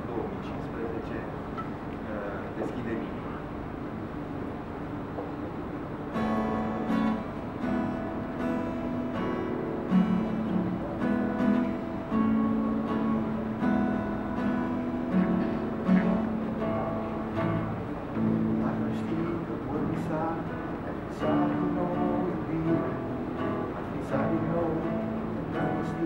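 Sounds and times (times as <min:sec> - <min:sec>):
acoustic guitar strummed chords: 0:06.0 - 0:26.0.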